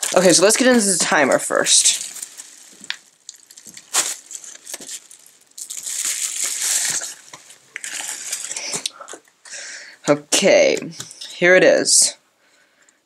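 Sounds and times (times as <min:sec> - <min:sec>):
bubble wrap crinkling and rustling: 0:00.0 - 0:09.2
plastic crackles: 0:00.0 - 0:09.3.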